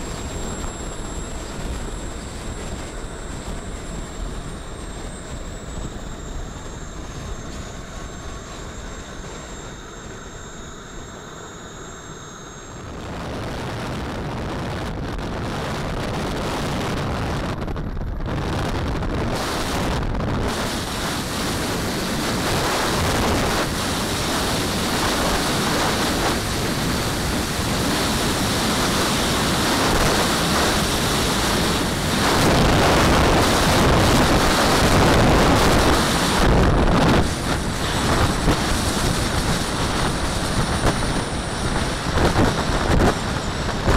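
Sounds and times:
wind buffeting microphone: 0:12.8 - 0:43.9.

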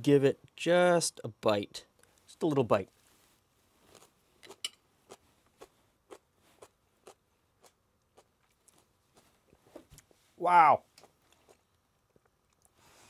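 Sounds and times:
chewing soft crunches: 0:03.8 - 0:10.2, 0:10.9 - 0:12.9.

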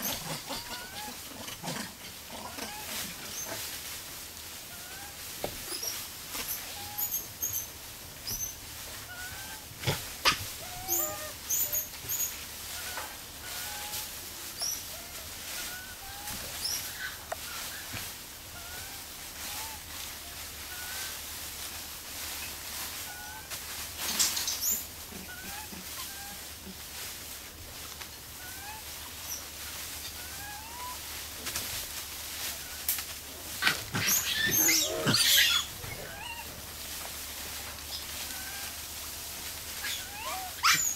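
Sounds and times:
animal chirping: 0:10.2 - 0:14.0, 0:33.6 - 0:36.5, 0:39.8 - 0:40.9
brief rustle: 0:23.8 - 0:24.9.

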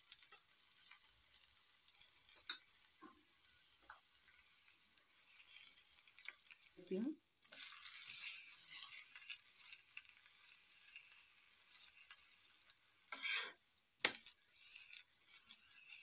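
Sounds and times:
oil sizzling on a griddle: 0:00.0 - 0:16.0
spatula scraping: 0:01.9 - 0:03.0, 0:07.5 - 0:16.0.

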